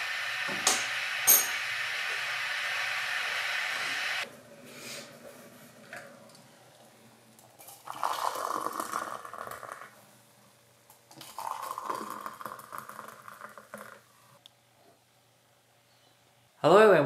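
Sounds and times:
water pouring into ceramic mug: 7.7s - 9.9s, 11.2s - 14.0s.

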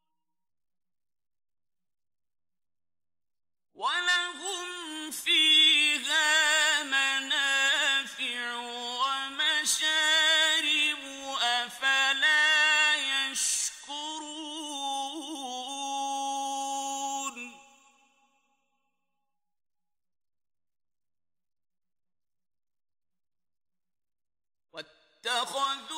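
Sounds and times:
man chanting melodically: 24.8s - 25.9s.

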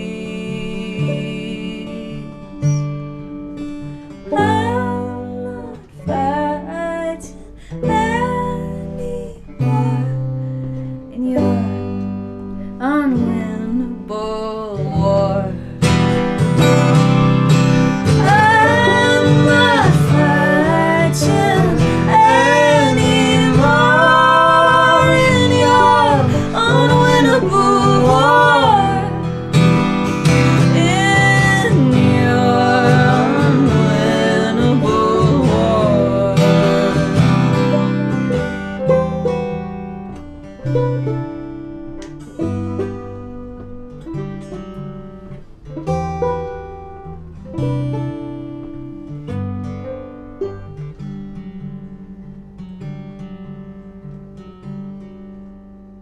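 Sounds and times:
banjo: 0.0s - 52.6s
strummed acoustic guitar: 0.0s - 56.0s
people singing: 18.1s - 37.6s.

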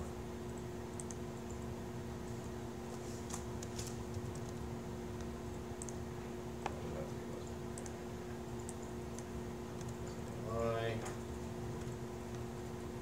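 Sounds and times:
low electrical hum: 0.0s - 13.0s
laptop keyboard typing: 0.5s - 1.6s, 3.3s - 6.0s, 8.6s - 10.4s.

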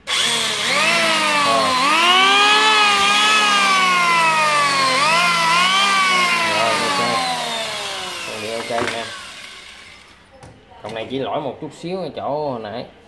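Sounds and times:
electric planer motor whining: 0.0s - 10.1s.

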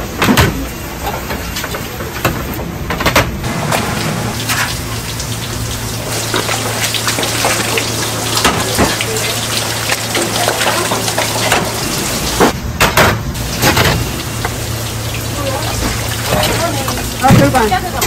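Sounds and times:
pot of water boiling: 3.4s - 12.6s, 13.4s - 18.0s
water splashing: 3.5s - 12.6s, 13.4s - 18.0s.

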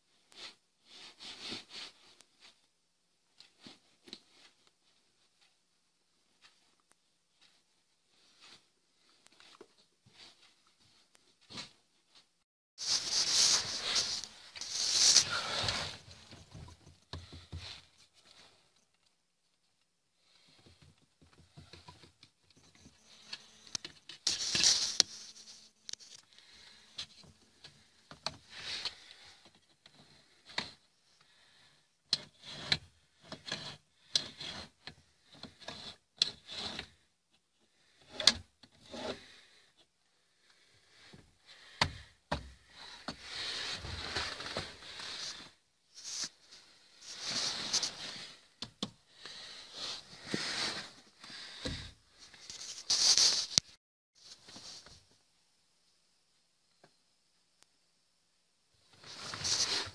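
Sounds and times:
hands rubbing and scraping: 12.8s - 16.4s, 23.2s - 26.2s, 43.1s - 48.5s, 49.2s - 51.6s, 52.2s - 53.8s, 59.0s - 59.9s
camera brushing and knocking: 12.8s - 17.8s, 46.0s - 48.4s, 51.7s - 53.6s, 59.0s - 59.9s.

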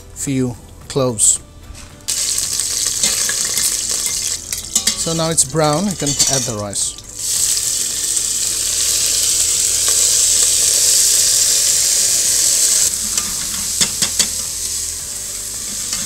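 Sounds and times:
rice sizzling in hot fat: 2.0s - 16.0s.

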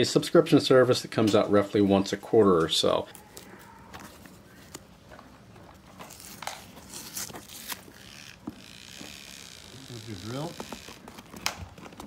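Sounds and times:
fingernail scratching packing tape: 6.1s - 11.5s.

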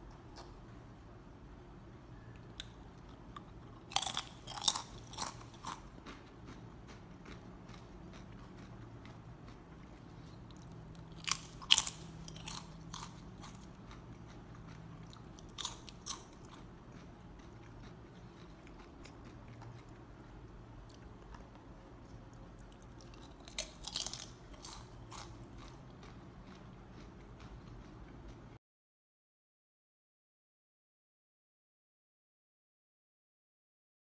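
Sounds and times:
potato chip crunching: 3.4s - 20.0s, 22.3s - 27.8s.

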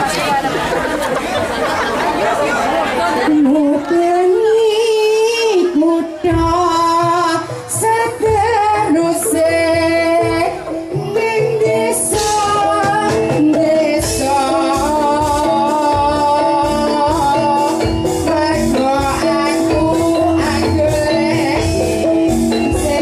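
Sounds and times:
person singing: 3.3s - 23.0s
gamelan music: 7.0s - 23.0s.

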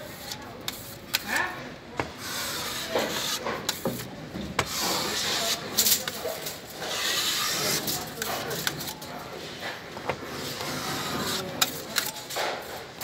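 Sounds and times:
putty knife scraping: 2.0s - 9.0s, 10.0s - 12.2s.

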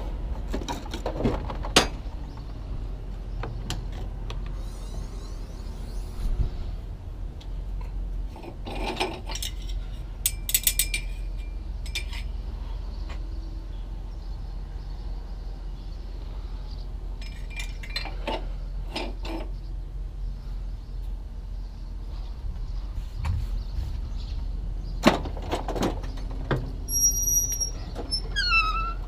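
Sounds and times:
metal parts clinking and rattling: 8.5s - 12.3s, 17.2s - 19.5s.

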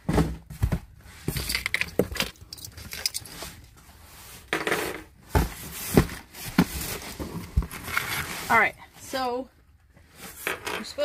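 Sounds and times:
cardboard knocks and scrapes: 0.0s - 2.1s, 5.2s - 8.4s.

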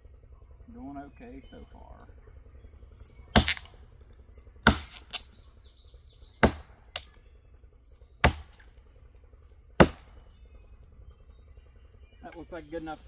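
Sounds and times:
axe striking tree trunk: 3.4s - 3.7s, 4.6s - 5.3s, 6.4s - 7.1s, 8.2s - 8.7s, 9.8s - 10.2s.

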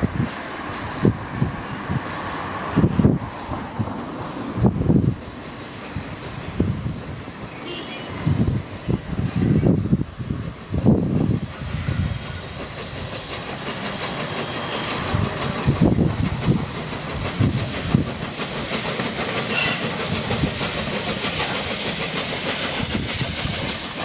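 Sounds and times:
steam hissing: 0.0s - 24.0s
steam locomotive exhaust puffs: 0.0s - 24.0s
wheels clicking over rail joints: 12.4s - 24.0s.

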